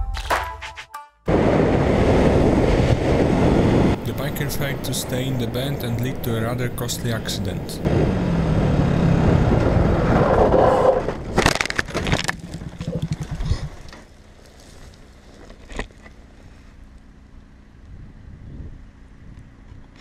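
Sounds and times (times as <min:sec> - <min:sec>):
wind rush: 0:01.3 - 0:11.4
motorcycle engine at speed: 0:07.8 - 0:11.4, 0:12.1 - 0:20.0
motorcycle crash scraping and impacts: 0:10.0 - 0:16.2.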